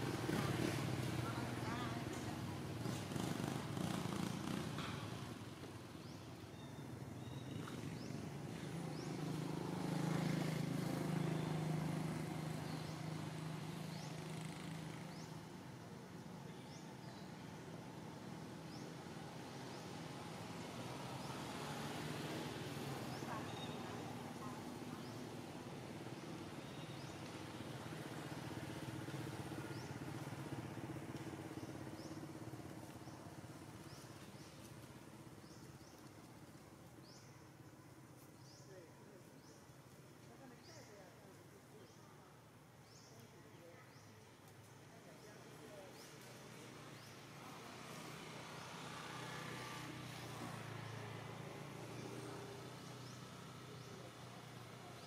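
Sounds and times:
distant vehicle engine hum: 0.0s - 39.6s, 44.8s - 55.0s.

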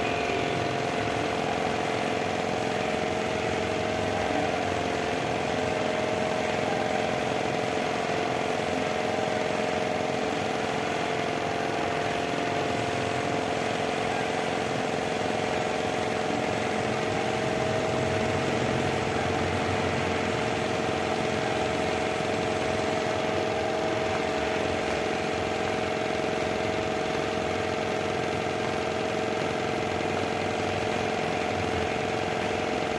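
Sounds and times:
motor humming: 0.0s - 32.9s.

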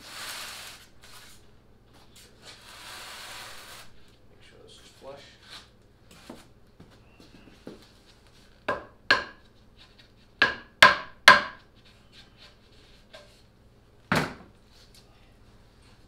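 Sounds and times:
hammer striking nails into wood: 8.7s - 9.4s, 10.4s - 11.6s.

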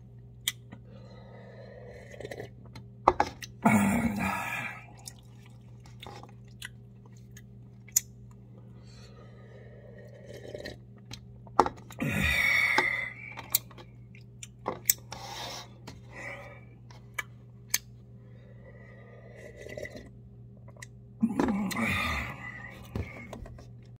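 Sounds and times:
person chewing: 4.8s - 8.4s
breathy burst: 12.0s - 13.4s.

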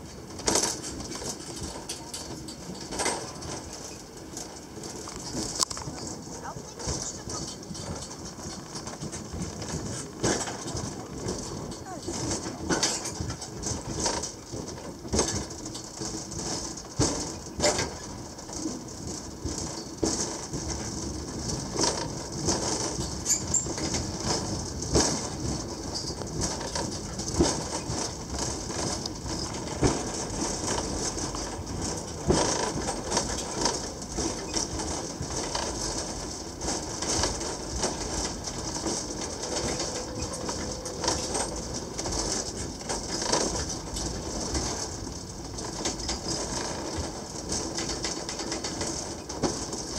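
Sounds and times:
funicular car running on track: 0.0s - 49.9s
knocks and creaks on rails: 0.0s - 49.9s.

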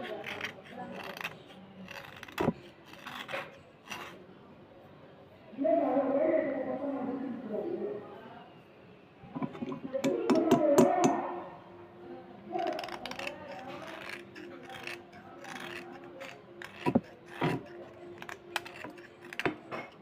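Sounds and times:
knife scraping slate pencil: 0.0s - 4.2s, 12.5s - 20.0s.

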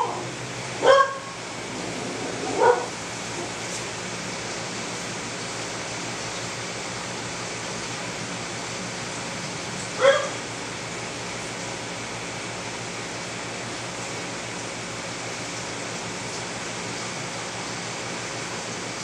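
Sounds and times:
dog yipping: 0.0s - 1.3s, 2.4s - 2.9s, 10.0s - 10.4s.

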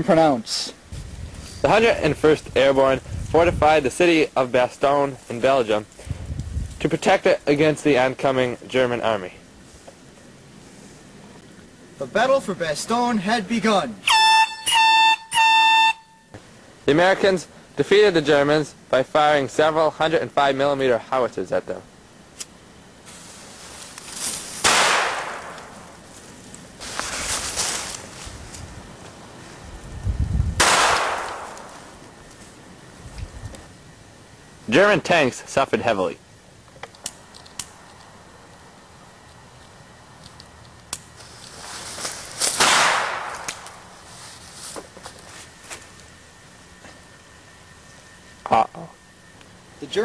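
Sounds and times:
firework crackles: 23.0s - 28.4s, 40.9s - 44.6s
firework rushing burst: 24.6s - 25.9s, 30.6s - 31.8s, 42.4s - 43.8s
sharp clicks and crackles: 36.6s - 38.6s, 39.2s - 41.6s, 42.4s - 43.8s
firework hissing burst: 41.2s - 43.9s.

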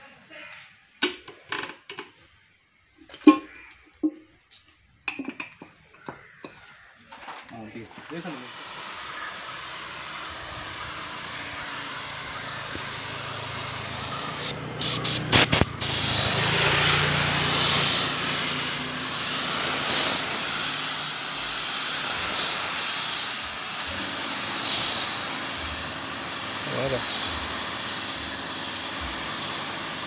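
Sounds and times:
spray gun hissing: 7.7s - 30.0s
spray gun trigger clicks: 7.9s - 16.6s, 17.3s - 30.0s.

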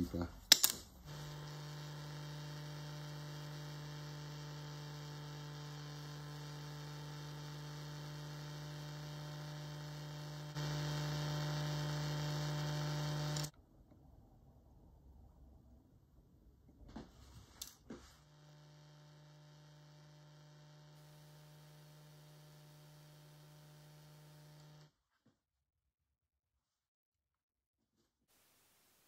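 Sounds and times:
lathe motor humming: 1.0s - 13.5s, 18.2s - 24.8s.

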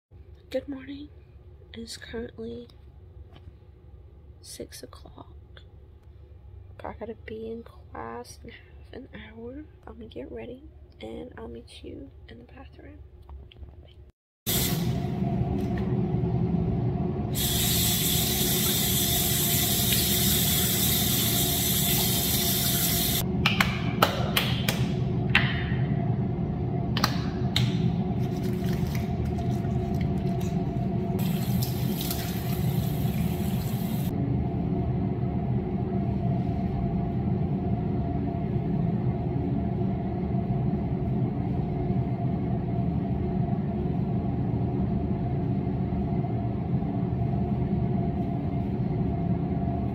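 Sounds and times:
steady low hum: 0.2s - 49.9s
tap water running into sink: 17.6s - 23.2s, 31.2s - 34.1s.

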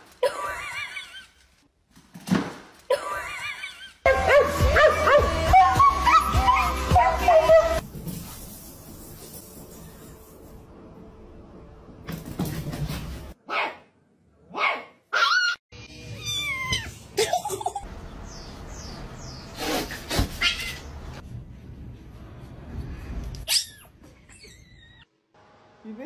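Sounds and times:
cats meowing: 16.1s - 17.0s.

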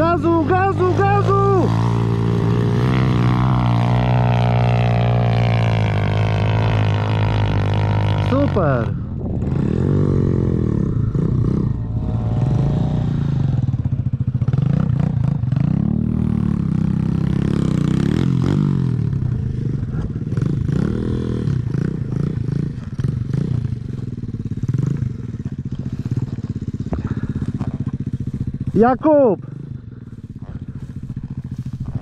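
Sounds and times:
motorbike engine revving: 0.0s - 32.0s.

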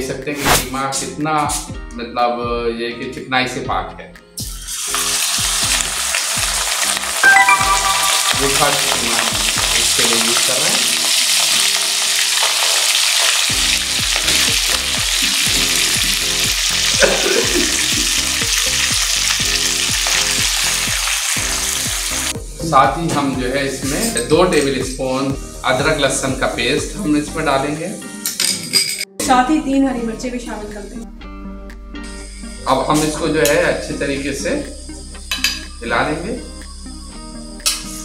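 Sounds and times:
meat sizzling in hot oil: 4.4s - 27.0s.

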